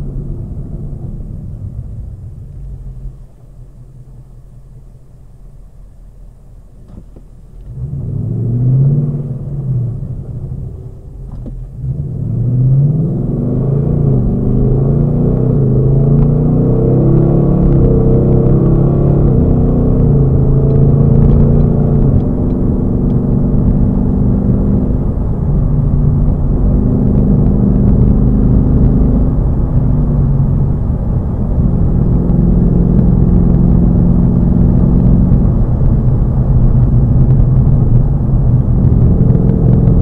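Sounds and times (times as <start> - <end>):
car engine accelerating through gears: 0.0 - 40.0.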